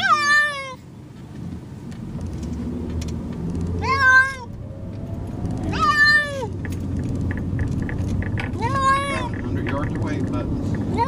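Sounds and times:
cat meowing: 0:00.0 - 0:00.8, 0:03.8 - 0:04.6, 0:05.6 - 0:06.6, 0:08.6 - 0:09.3
low rumble: 0:01.4 - 0:11.0.

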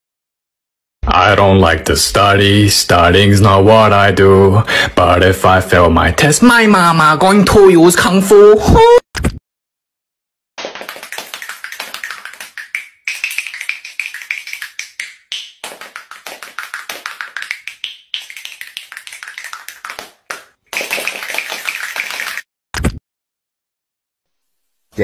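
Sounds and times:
rapid tapping on bald head: 0:10.6 - 0:22.4.

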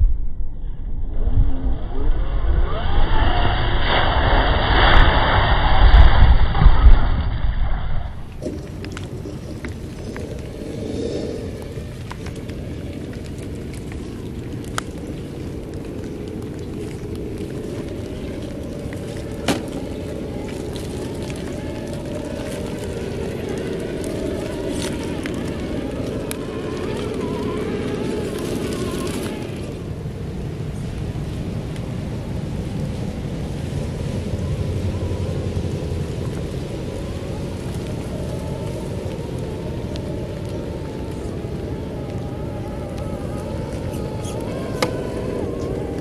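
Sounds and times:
tyres splashing through mud: 0:08.2 - 0:30.0.

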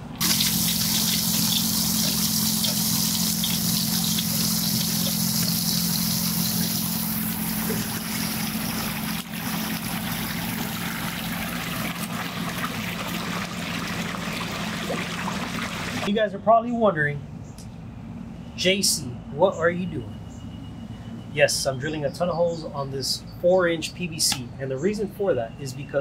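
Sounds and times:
pump low hum: 0:00.0 - 0:16.1
water pouring: 0:00.2 - 0:16.1.

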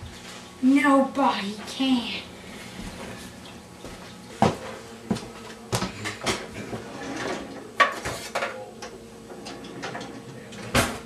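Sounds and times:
drawers and cupboard doors shutting: 0:05.9 - 0:08.6, 0:09.3 - 0:11.0.

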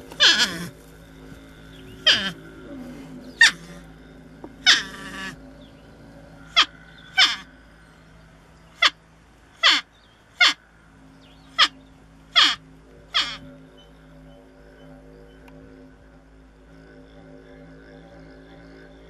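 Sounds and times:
porcupine squealing: 0:00.0 - 0:07.6, 0:08.7 - 0:09.0, 0:09.6 - 0:10.6, 0:11.5 - 0:13.9.

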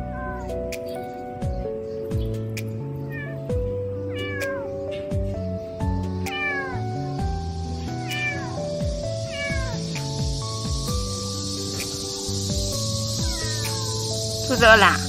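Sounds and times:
kitten meowing: 0:00.0 - 0:00.6, 0:03.0 - 0:03.5, 0:04.1 - 0:05.1, 0:06.2 - 0:07.0, 0:07.9 - 0:10.0, 0:12.7 - 0:15.0
background music with steady beat: 0:00.0 - 0:15.0.

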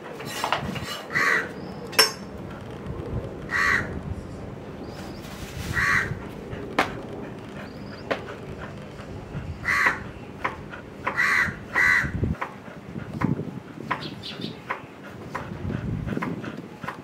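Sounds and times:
crow cawing: 0:01.1 - 0:01.5, 0:03.5 - 0:04.0, 0:05.8 - 0:06.1, 0:09.6 - 0:10.0, 0:11.1 - 0:12.2.

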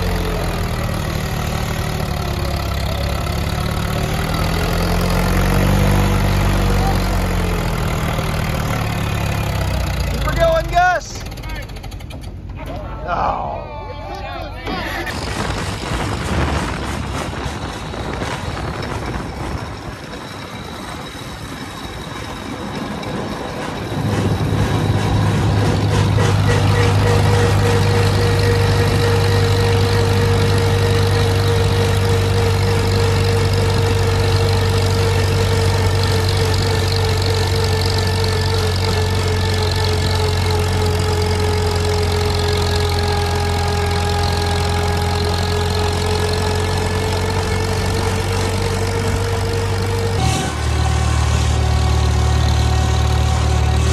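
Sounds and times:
tractor engine starting and running: 0:00.0 - 0:53.9
thin whine: 0:48.2 - 0:53.9.

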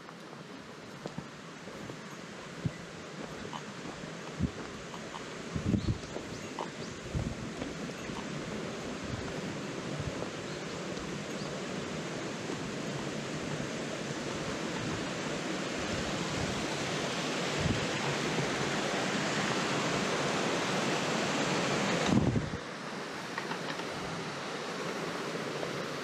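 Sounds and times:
waterfall rushing water: 0:00.0 - 0:26.0.

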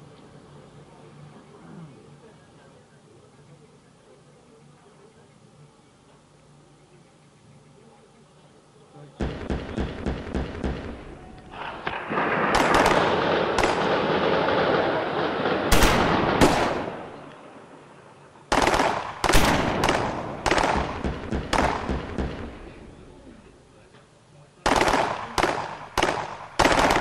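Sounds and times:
airsoft guns firing bursts: 0:09.2 - 0:17.2, 0:18.5 - 0:22.8, 0:24.6 - 0:27.0
sharp bangs: 0:09.2 - 0:17.8, 0:18.5 - 0:23.5, 0:24.6 - 0:27.0.

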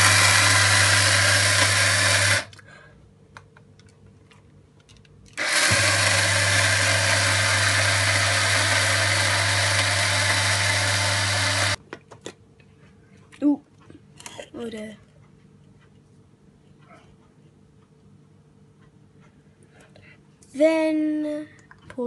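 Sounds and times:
electric blade grinder running: 0:00.0 - 0:02.6, 0:05.4 - 0:11.8.

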